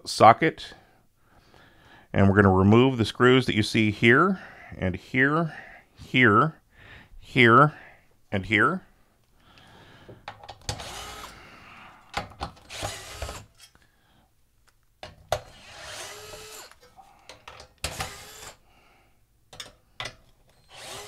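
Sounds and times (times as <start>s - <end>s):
cordless drill whining: 10.7s - 11.4s, 12.5s - 13.6s, 15.4s - 16.9s, 17.5s - 18.6s, 20.5s - 21.0s.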